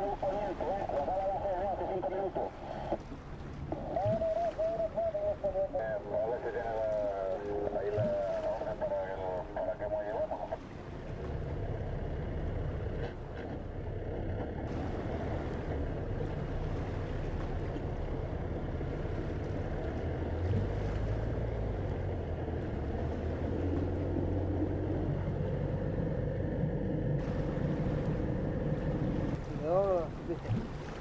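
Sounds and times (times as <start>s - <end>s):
boat motor droning: 0.0s - 31.0s
water noise: 0.0s - 31.0s
wind: 0.0s - 31.0s.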